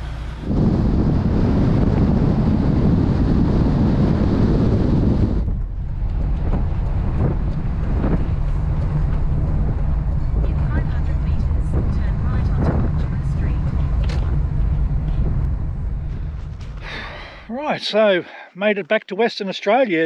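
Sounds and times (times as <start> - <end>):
wind buffeting microphone: 0.0 - 17.0
road and engine rumble: 0.0 - 18.5.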